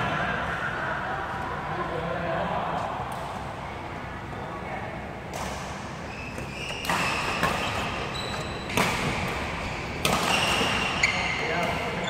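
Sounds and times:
shoes squeaking on floor: 6.0s - 12.0s
racket striking shuttlecock: 6.4s - 11.0s.

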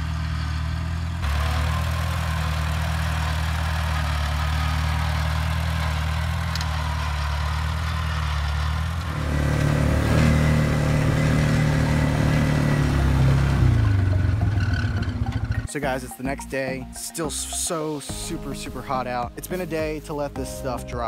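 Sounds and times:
atv engine running: 0.0s - 15.7s
tractor engine running: 0.0s - 17.5s.

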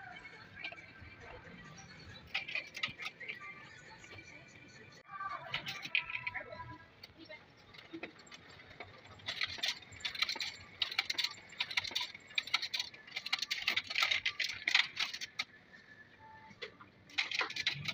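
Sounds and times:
photocopier finisher clicking and rattling: 9.2s - 15.4s, 17.1s - 17.9s.

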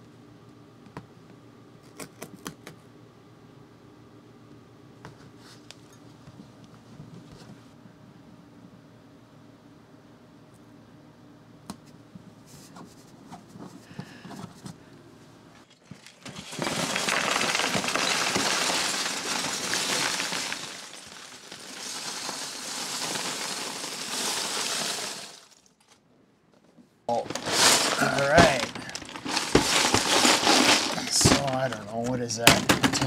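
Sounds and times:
plastic bricks rattling clatter: 15.8s - 25.7s, 27.1s - 31.9s.

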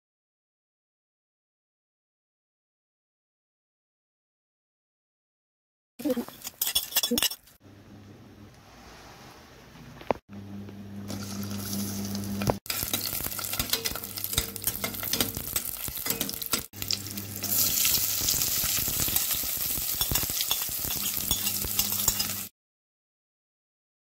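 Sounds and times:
meat frying in hot oil: 11.1s - 22.5s.

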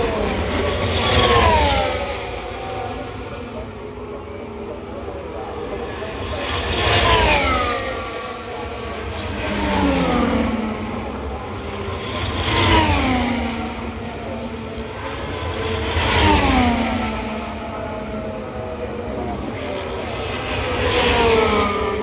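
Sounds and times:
racing cars passing at speed: 0.0s - 4.0s, 4.8s - 22.0s.

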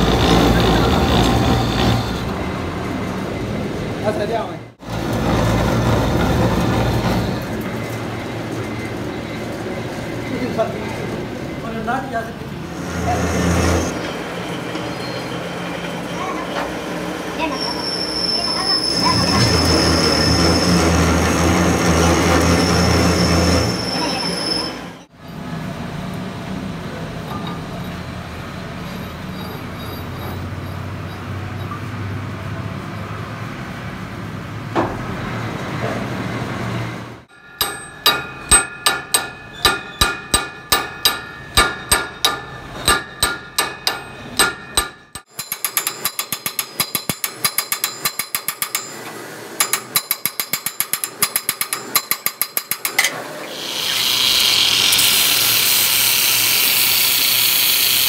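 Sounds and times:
hammer striking steel: 37.3s - 56.4s
lathe humming: 53.4s - 58.0s.

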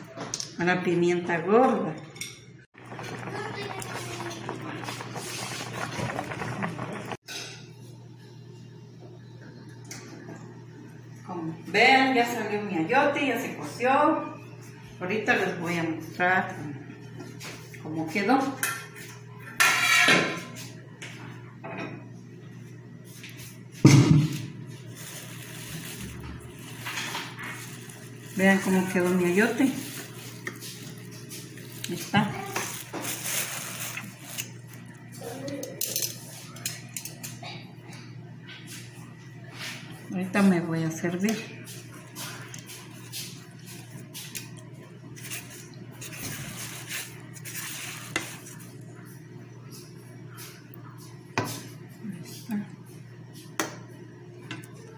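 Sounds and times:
plastic sheet rustling: 2.8s - 7.2s, 24.2s - 35.0s, 45.2s - 48.8s
kitchen clatter: 19.5s - 20.6s, 25.4s - 34.5s.

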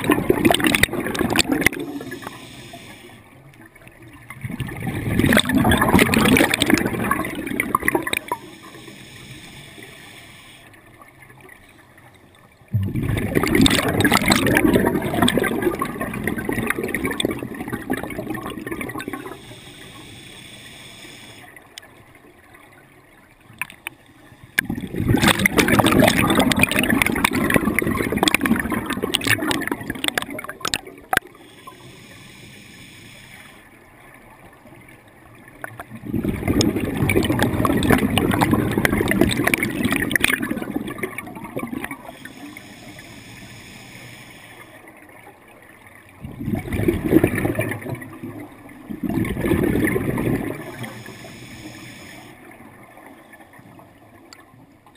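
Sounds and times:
exhaled bubbles burbling: 0.0s - 2.4s, 4.0s - 8.6s, 12.7s - 19.4s, 24.6s - 31.4s, 35.6s - 42.2s, 46.2s - 51.2s
regulator inhalations: 1.7s - 3.3s, 8.1s - 10.8s, 19.1s - 21.6s, 31.3s - 33.7s, 42.0s - 44.9s, 50.7s - 52.5s.

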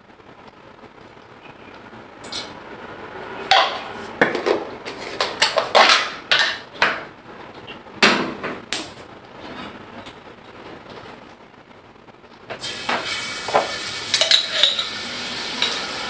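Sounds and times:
kitchenware clattering on countertop: 3.5s - 7.1s, 12.9s - 15.0s.

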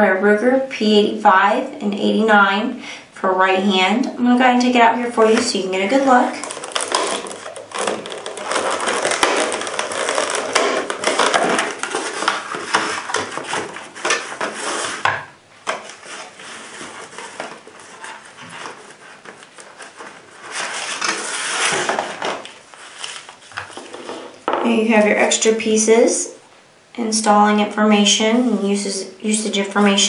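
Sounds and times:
rigid plastic packaging crinkling: 5.0s - 24.5s.

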